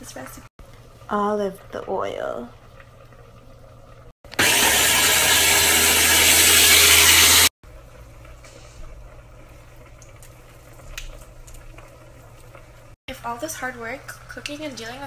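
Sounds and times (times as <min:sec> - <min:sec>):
food processor motor running: 0:04.3 - 0:07.5.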